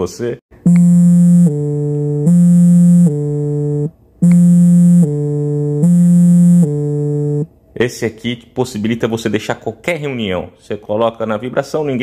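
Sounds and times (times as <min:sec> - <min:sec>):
phone vibration buzzing: 0:00.6 - 0:07.5.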